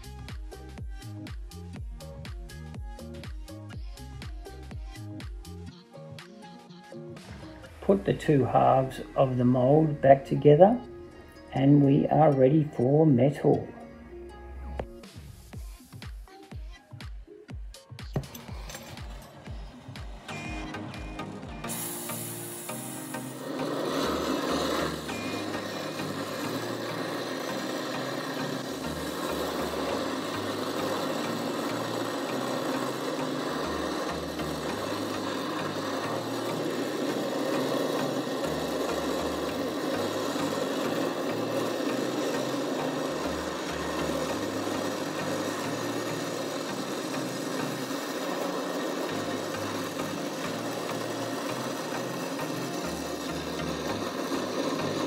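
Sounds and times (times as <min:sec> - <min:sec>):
gas torch flame rushing: 0:18.1 - 0:55.0.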